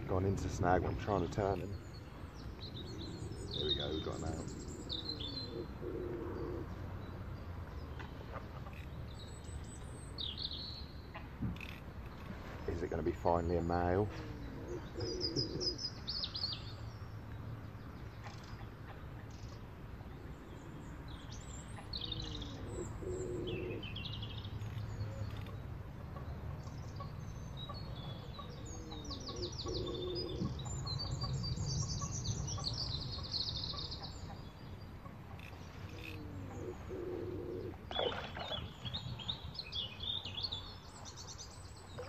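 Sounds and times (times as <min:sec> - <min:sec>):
songbirds chirping: 0:00.0 - 0:42.0
pigeon cooing: 0:03.2 - 0:06.7, 0:14.1 - 0:15.8, 0:22.2 - 0:23.8, 0:28.4 - 0:30.5, 0:35.9 - 0:38.6.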